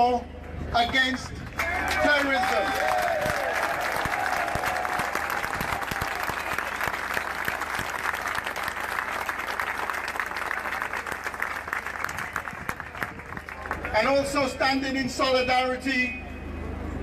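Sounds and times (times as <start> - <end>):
large crowd applauding: 0.8 - 14.2.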